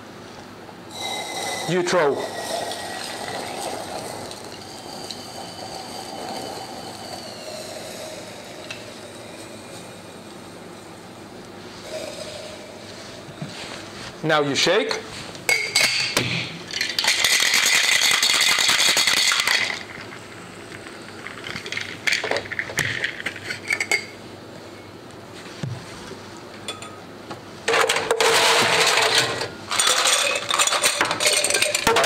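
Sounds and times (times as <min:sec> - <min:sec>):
ice clinking: 0:00.9 - 0:10.0, 0:16.7 - 0:20.1, 0:29.7 - 0:32.0
ice rattling in cocktail shaker: 0:02.0 - 0:08.6, 0:16.7 - 0:20.1, 0:21.2 - 0:23.5, 0:29.7 - 0:32.0.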